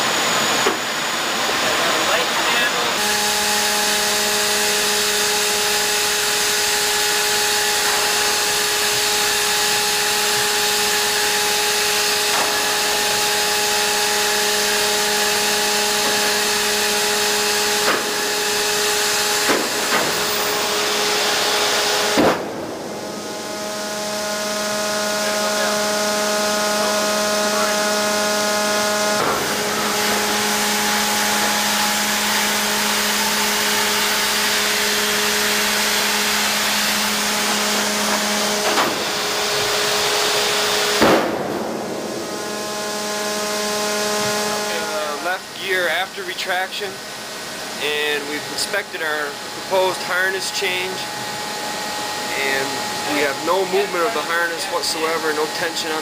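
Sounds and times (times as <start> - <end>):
hydraulic machine whine: 0.0 - 56.0
loud clunk: 17.8 - 18.2, 19.4 - 20.4, 22.1 - 23.2, 41.0 - 42.3.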